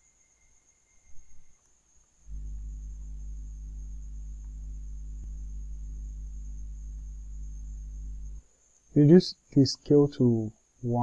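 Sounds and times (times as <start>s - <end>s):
faint high whine: 0.0s - 11.0s
low electrical hum: 1.0s - 11.0s
low rumble: 2.3s - 8.4s.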